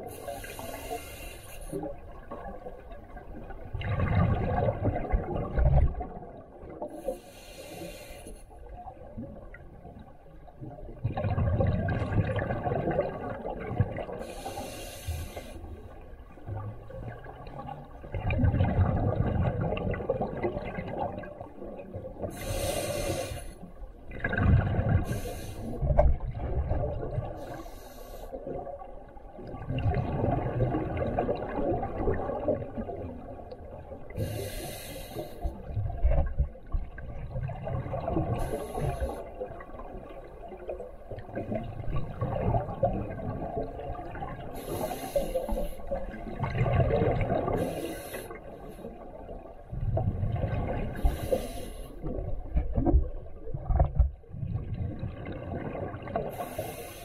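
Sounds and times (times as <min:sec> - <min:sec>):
regulator inhalation hiss: 0:00.2 - 0:01.8, 0:07.1 - 0:08.4, 0:14.2 - 0:15.6, 0:22.4 - 0:23.6, 0:25.1 - 0:25.8, 0:27.4 - 0:28.4, 0:34.2 - 0:35.5, 0:44.6 - 0:45.9, 0:47.6 - 0:48.4, 0:51.0 - 0:52.0, 0:56.3 - 0:57.0
exhaled bubbles rumbling: 0:01.8 - 0:07.0, 0:08.6 - 0:14.4, 0:15.7 - 0:23.0, 0:23.9 - 0:27.5, 0:28.4 - 0:34.4, 0:35.5 - 0:45.0, 0:45.6 - 0:56.8.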